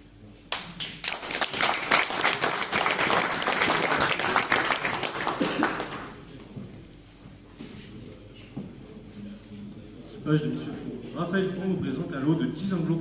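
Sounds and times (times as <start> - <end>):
crowd applauding: 0.5 - 6.3.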